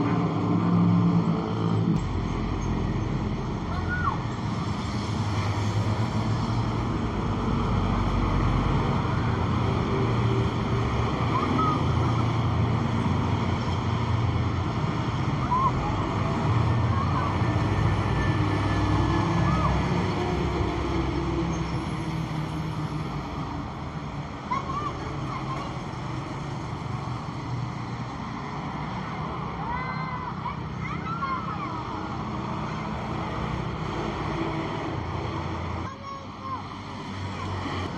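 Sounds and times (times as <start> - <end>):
motorcycles passing: 0.0 - 37.9
trucks passing: 0.0 - 37.9.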